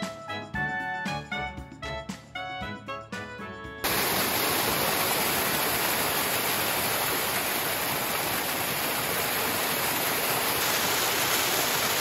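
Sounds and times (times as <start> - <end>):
music: 0.0 - 3.9
rushing water: 3.8 - 12.0.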